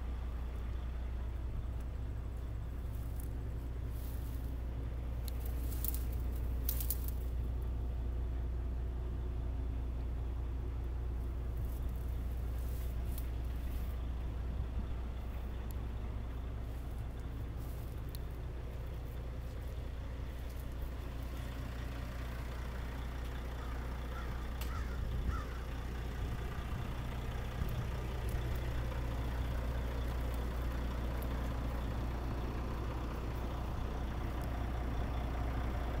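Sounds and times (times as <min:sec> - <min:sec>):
diesel engine idling: 0:00.0 - 0:36.0
bird calling: 0:23.5 - 0:26.1.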